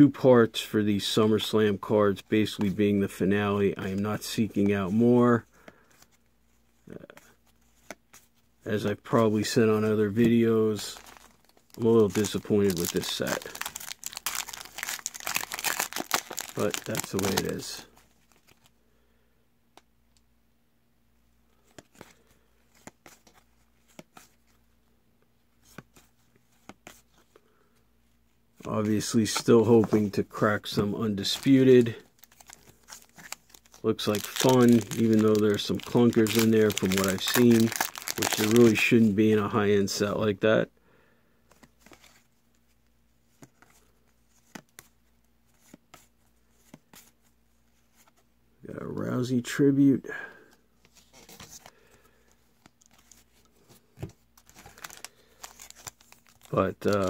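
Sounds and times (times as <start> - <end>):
trading cards being flipped: 9.6 - 18.7.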